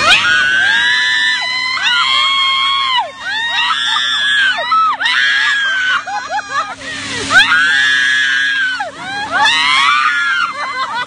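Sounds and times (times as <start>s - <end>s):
people screaming: 0.0s - 11.0s.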